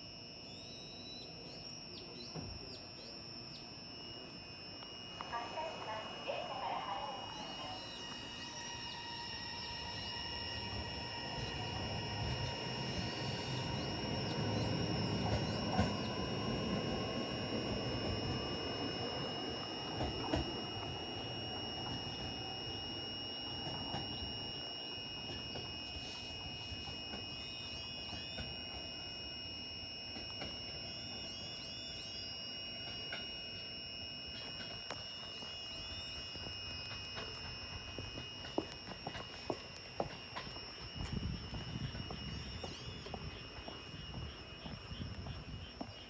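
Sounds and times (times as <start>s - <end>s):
train electrical whine: 0.0s - 46.0s
train pulling out rumble: 5.2s - 29.1s, 34.3s - 46.0s.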